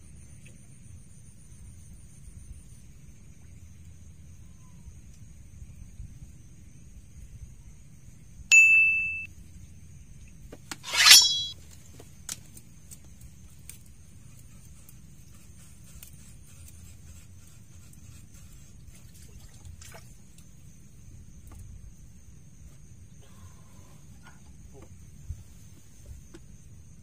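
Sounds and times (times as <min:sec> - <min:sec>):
fishing rod bite bell ringing: 0:08.5 - 0:09.3, 0:10.8 - 0:11.6.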